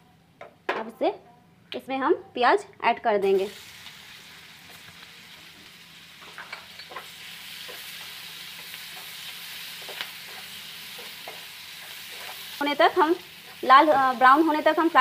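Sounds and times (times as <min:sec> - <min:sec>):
onions sizzling in a frying pan: 0:03.2 - 0:15.0.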